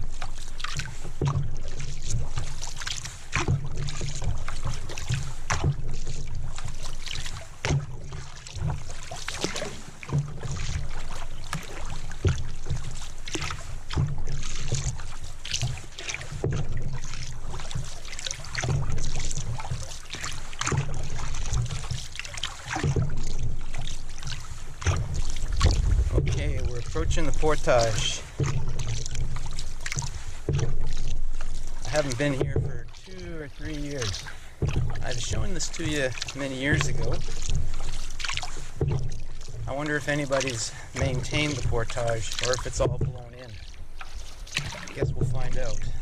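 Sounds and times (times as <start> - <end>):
low rumble of hull vibration: 0.0 - 46.0
paddle knocking on boat: 0.0 - 46.0
water rushing along hull: 0.0 - 46.0.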